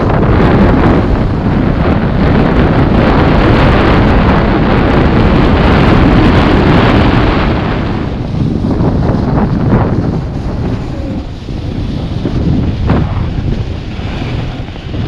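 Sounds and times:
snowboard sliding over snow: 0:00.0 - 0:15.0
wind buffeting microphone: 0:00.0 - 0:15.0.

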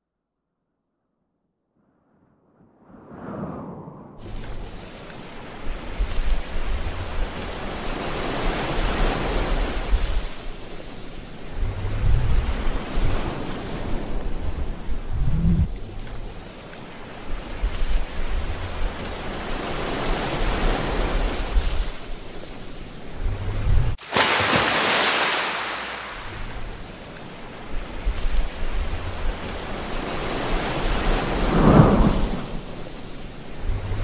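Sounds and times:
ocean surf rushing: 0:16.4 - 0:34.0
loud wave crash: 0:24.0 - 0:26.7.

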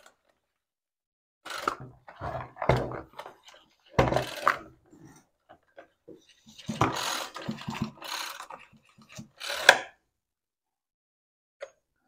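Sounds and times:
plastic and metal knocks and rattles: 0:01.7 - 0:05.2, 0:06.5 - 0:09.4.

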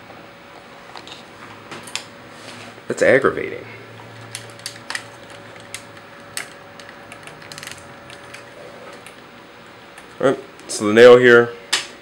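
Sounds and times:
plastic parts clicking: 0:04.3 - 0:09.2.

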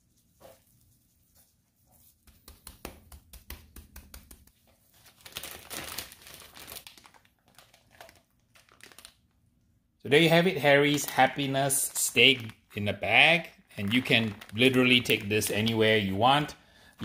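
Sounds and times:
plastic bag crinkling: 0:04.8 - 0:09.4, 0:10.5 - 0:16.2.

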